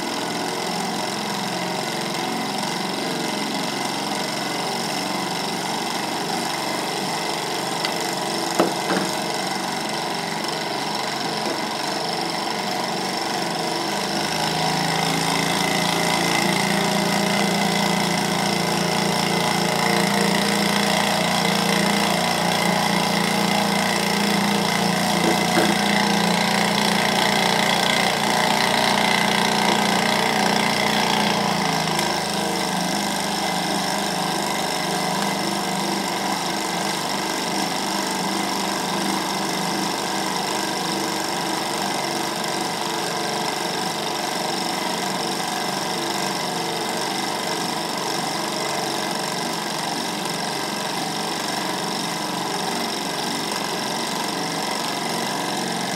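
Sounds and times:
stirling engine running: 6.1 - 37.7.

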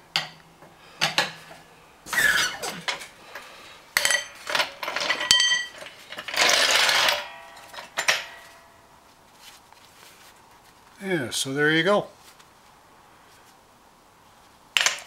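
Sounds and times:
jack scraping on concrete: 4.0 - 8.6
steel clanks and rattles: 4.0 - 8.7.

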